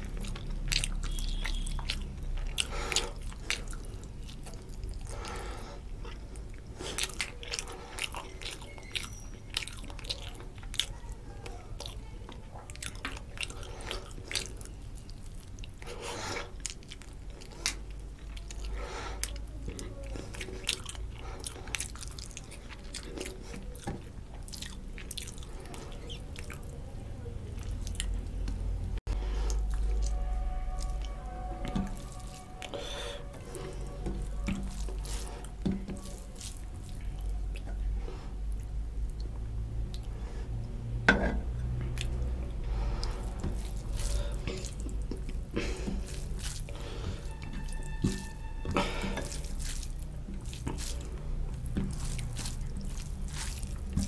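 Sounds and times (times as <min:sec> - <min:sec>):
wet chewing and lip smacks: 0:00.0 - 0:26.8, 0:27.4 - 0:28.6, 0:29.4 - 0:40.7, 0:41.6 - 0:54.0
fingers squelching rice: 0:29.4 - 0:37.6, 0:42.0 - 0:54.0.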